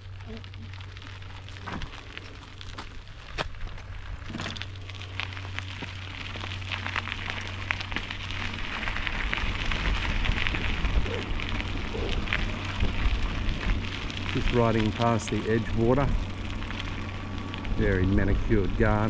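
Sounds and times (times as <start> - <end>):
bicycle tyres rolling over grit: 0.0 - 19.0
wind rumbling on microphone: 0.0 - 19.0.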